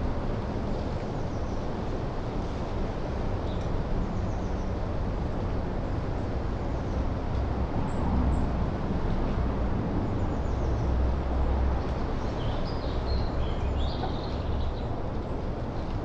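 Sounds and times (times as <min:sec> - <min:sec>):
wind noise: 0:04.0 - 0:13.2
low rumble: 0:06.7 - 0:12.0.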